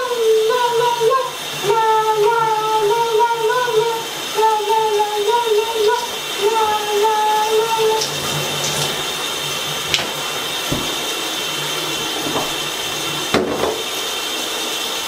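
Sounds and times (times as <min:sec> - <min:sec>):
shower running: 0:00.0 - 0:15.0
knocks: 0:10.7 - 0:11.1, 0:12.2 - 0:12.6, 0:13.3 - 0:13.8.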